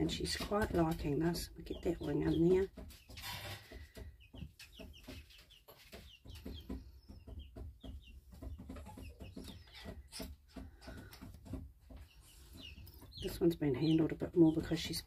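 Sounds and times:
chick peeping: 0.0s - 15.0s.

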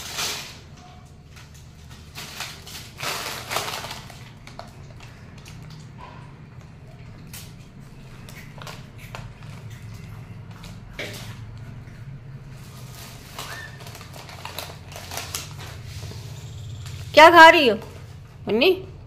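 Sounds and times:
foil packet crinkling: 0.0s - 6.0s, 7.2s - 11.3s, 12.5s - 17.1s.

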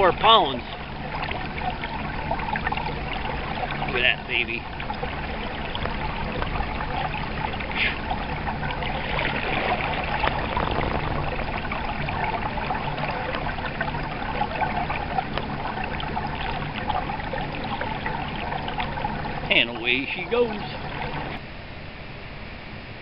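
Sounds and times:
stream water trickling: 0.0s - 22.9s.

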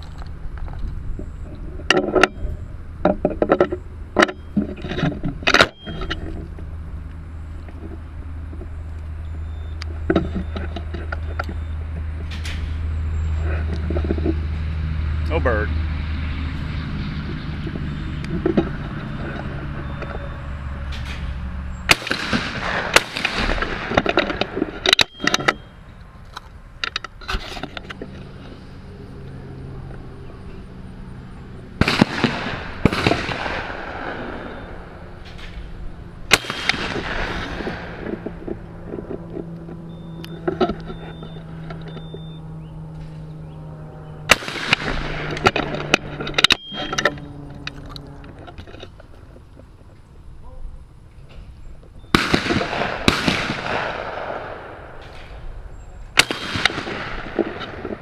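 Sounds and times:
shotgun shots echoing: 21.9s - 24.0s, 31.8s - 35.6s, 36.3s - 38.1s, 44.3s - 45.6s, 52.1s - 55.4s, 56.2s - 57.8s.

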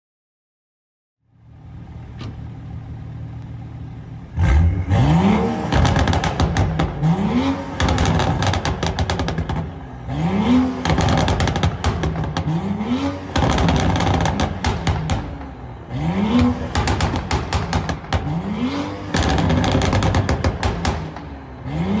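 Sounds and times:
car engine idling and revving: 1.2s - 22.0s
exhaust crackles and pops: 5.5s - 15.6s, 16.3s - 21.3s.

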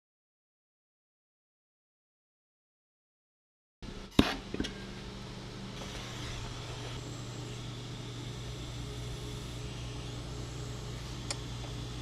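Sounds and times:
workshop hum: 3.8s - 12.0s.

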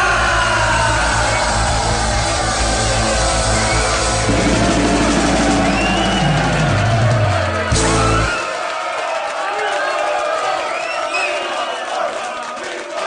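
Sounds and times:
crowd noise: 0.0s - 13.0s
rock music with drums and bass: 1.9s - 8.3s.

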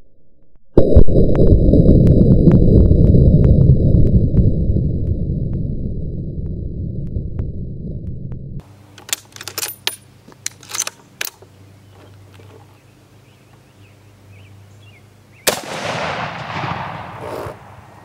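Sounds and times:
rifle handling clicks: 8.9s - 12.7s
rifle shot echoing: 15.4s - 18.0s.

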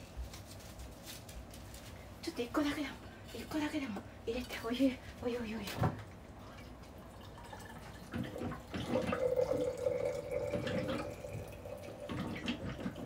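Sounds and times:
water pouring into a container: 7.0s - 13.0s.

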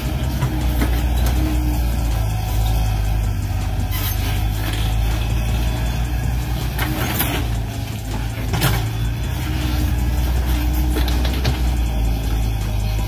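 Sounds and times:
model excavator engine rumble: 0.0s - 13.0s.

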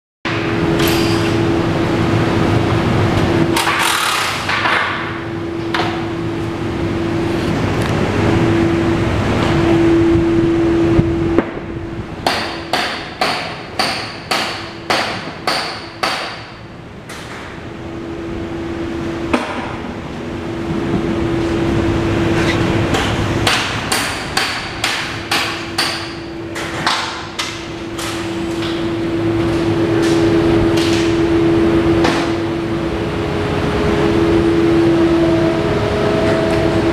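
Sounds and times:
steady mechanical hum: 0.3s - 36.9s
hammer striking metal: 12.2s - 16.6s, 22.9s - 28.2s.

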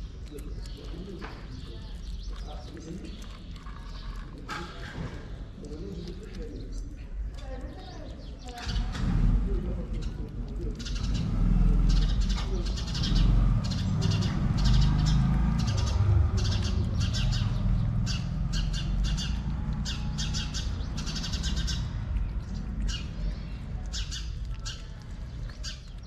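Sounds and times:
cats chewing wet food: 0.0s - 26.0s
low rumble: 8.7s - 26.0s.

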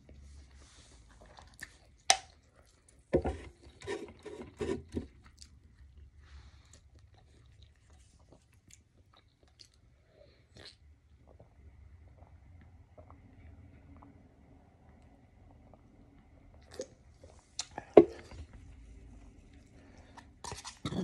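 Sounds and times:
person chewing crunchy food: 1.0s - 3.0s, 5.1s - 9.9s.

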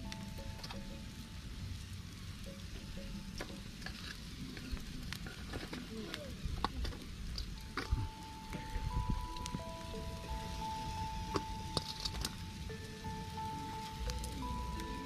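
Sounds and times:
meat sizzling on grill: 0.0s - 15.0s
wood fire crackling: 0.0s - 15.0s
sharp pops from fire: 2.5s - 13.2s.

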